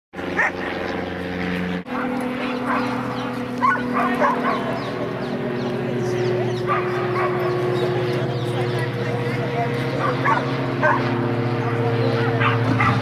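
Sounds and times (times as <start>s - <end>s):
dogs barking and yipping: 0.2s - 0.9s, 1.9s - 5.7s, 6.5s - 13.0s
steady low hum: 0.2s - 13.0s.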